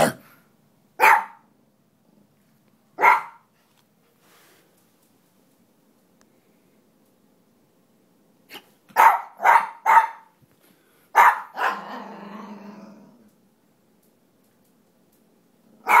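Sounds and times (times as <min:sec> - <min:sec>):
dog barking: 0:01.0 - 0:01.5, 0:03.0 - 0:03.5, 0:08.9 - 0:10.3, 0:11.1 - 0:11.8
dog growling: 0:11.5 - 0:13.3.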